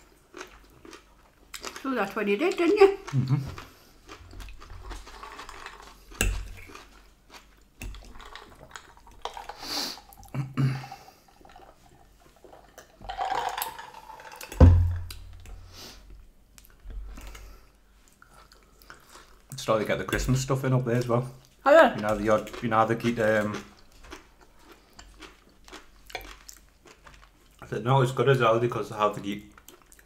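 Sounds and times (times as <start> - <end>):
chewing: 0.0 - 1.9, 2.6 - 15.6, 16.6 - 19.6, 21.0 - 27.7, 29.5 - 30.0
knock on table: 14.6 - 15.0.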